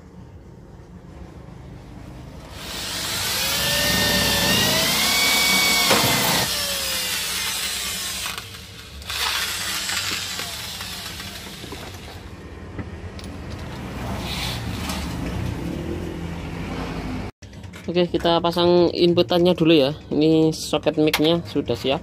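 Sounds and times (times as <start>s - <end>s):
electric drill boring through metal: 2.4s - 12.2s.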